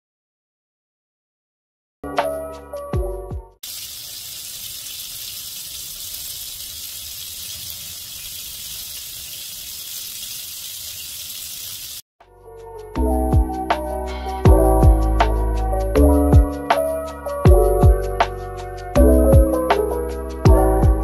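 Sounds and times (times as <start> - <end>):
butter sizzling in a pan: 3.6 - 12.0.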